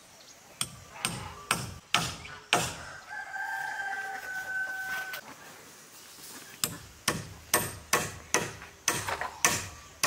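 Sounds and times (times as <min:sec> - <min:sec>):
rooster crowing: 0:02.7 - 0:05.2.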